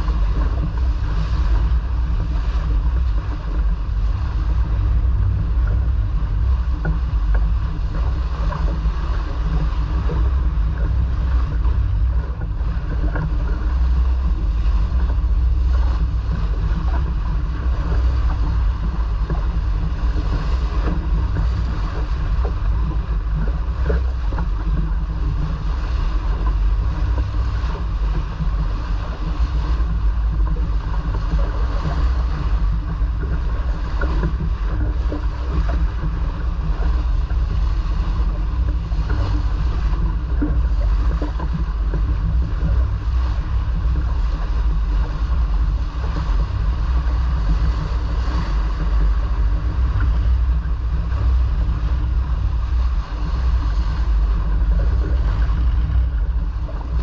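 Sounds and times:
water rushing along hull: 0.0s - 57.0s
wind rumbling on microphone: 0.0s - 57.0s.

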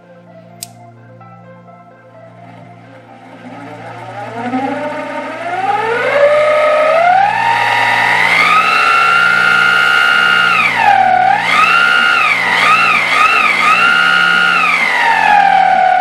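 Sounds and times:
small electric motor whining: 3.0s - 16.0s.

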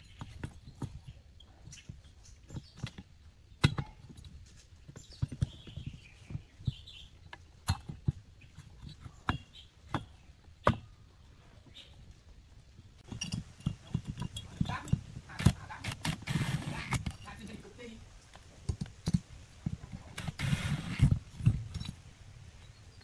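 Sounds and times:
metal parts knocking and clicking: 13.0s - 17.4s.

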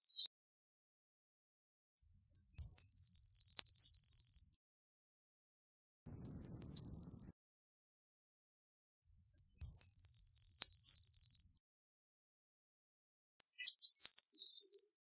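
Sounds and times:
bird singing high trilling song: 0.0s - 0.3s, 2.0s - 4.6s, 6.1s - 7.3s, 9.1s - 11.6s, 13.4s - 15.0s.

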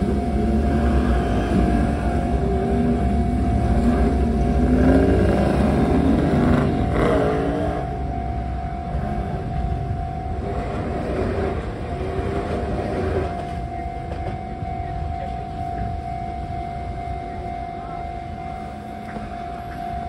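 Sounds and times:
level crossing warning bell: 0.0s - 20.0s
traffic rumble: 0.0s - 20.0s.

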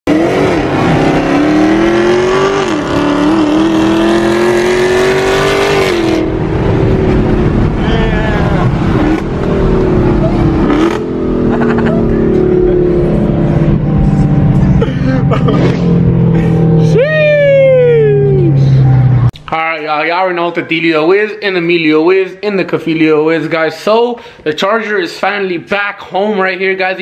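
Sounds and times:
car engine accelerating: 0.1s - 19.4s.

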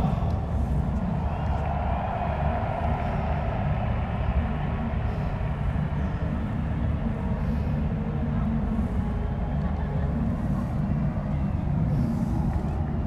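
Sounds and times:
low rumbling noise: 0.0s - 13.0s.

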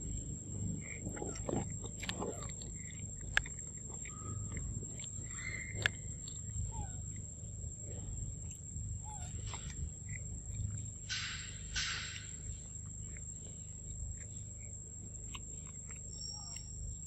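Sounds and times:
monkey chewing: 0.0s - 17.0s
wet mouth smacking: 0.8s - 6.9s
sharp click: 11.1s - 12.4s.

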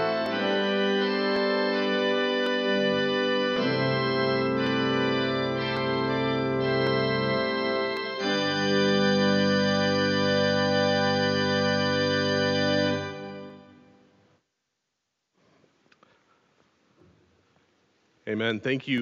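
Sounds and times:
church organ chords: 0.0s - 14.1s.

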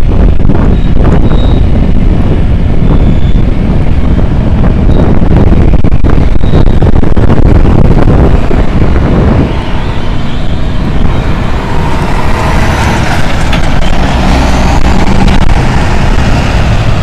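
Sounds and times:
truck rumbling past: 0.0s - 17.0s
wind buffeting microphone: 0.0s - 17.0s.

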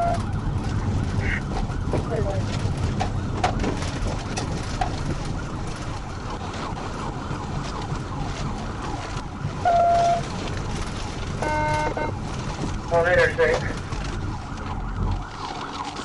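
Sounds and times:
car rumbling over rough ground: 0.0s - 16.0s
faint siren wailing: 0.0s - 16.0s
short steady tone: 11.4s - 12.1s.

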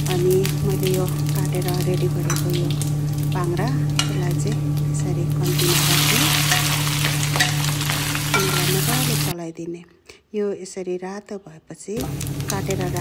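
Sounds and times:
loud sizzle: 0.0s - 9.3s, 12.0s - 13.0s
oil frying in a wok: 0.0s - 9.3s, 12.0s - 13.0s
steady low hum: 0.0s - 9.3s
steel spoon scraping: 6.2s - 9.2s.

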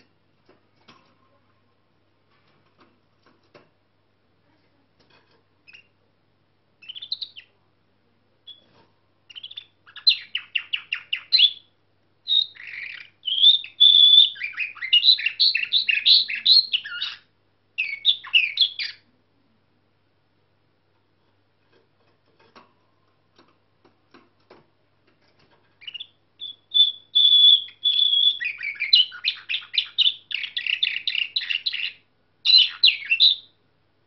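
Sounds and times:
canary singing trills: 5.6s - 6.0s, 6.8s - 7.6s, 8.4s - 19.1s, 25.7s - 33.6s.

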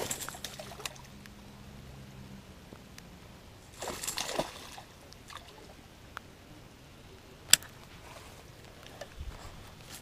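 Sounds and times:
fish splashing in water: 0.0s - 1.1s, 3.7s - 5.7s.

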